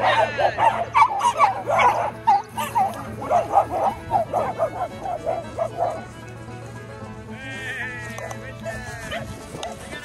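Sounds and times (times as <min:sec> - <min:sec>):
small dogs yapping and barking: 0:00.0 - 0:06.1, 0:08.2 - 0:10.0.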